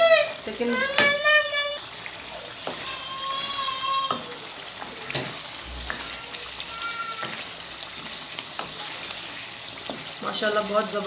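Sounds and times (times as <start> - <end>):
food sizzling in oil: 0.0 - 11.0
spatula scraping against pan: 2.0 - 10.3.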